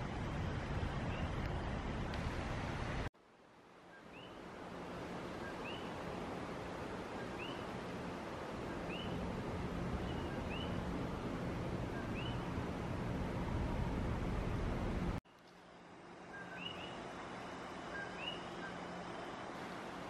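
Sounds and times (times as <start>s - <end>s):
steady low hum: 4.4s - 20.0s
frog calling: 17.9s - 18.8s.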